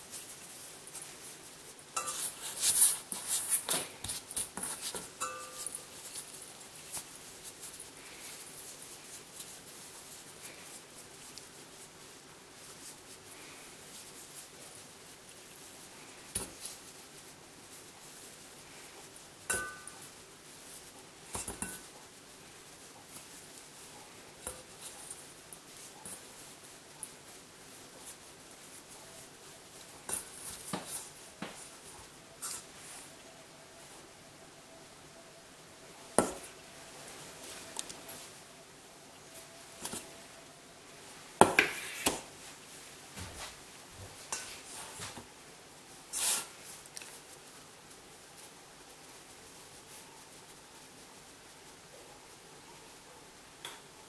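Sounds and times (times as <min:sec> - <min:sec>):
hands working dough in bowl: 0:00.0 - 0:34.0, 0:35.8 - 0:54.0
metal bowl clinking: 0:01.9 - 0:02.4, 0:04.7 - 0:06.2, 0:19.5 - 0:20.2.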